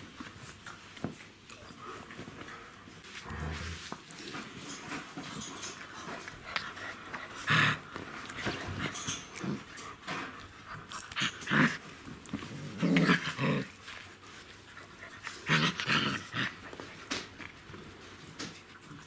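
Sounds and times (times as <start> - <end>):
puppies growling: 6.1 - 14.1, 14.8 - 17.0.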